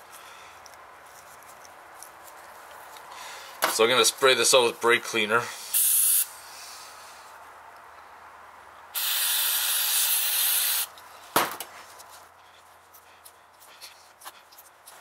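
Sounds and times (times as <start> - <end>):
aerosol spray hiss: 5.7 - 6.3, 9.0 - 10.9.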